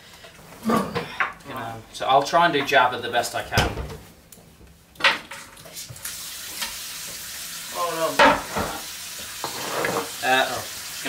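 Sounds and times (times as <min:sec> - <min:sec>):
water running from kitchen tap: 0:05.5 - 0:11.0.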